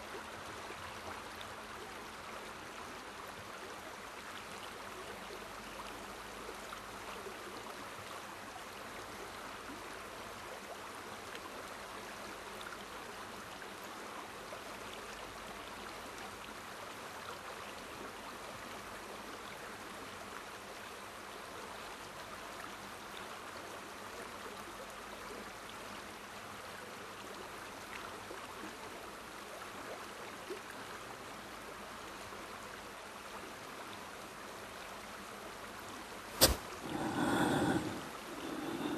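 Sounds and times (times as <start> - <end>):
river flowing over stones: 36.1 - 38.9.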